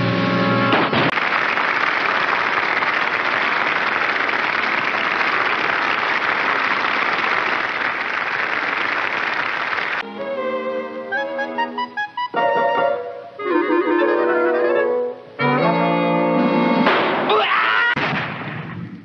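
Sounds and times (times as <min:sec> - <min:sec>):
crowd clapping: 0:01.1 - 0:10.0
music: 0:10.0 - 0:16.9.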